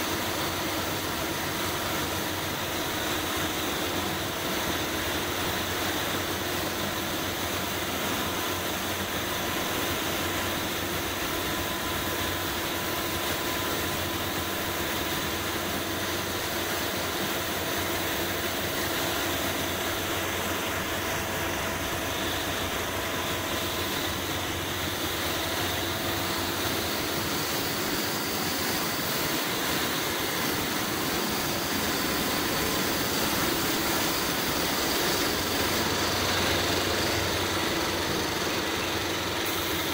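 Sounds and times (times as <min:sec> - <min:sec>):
low machine hum: 0:00.1 - 0:39.9
paint spray gun hissing: 0:12.0 - 0:39.9.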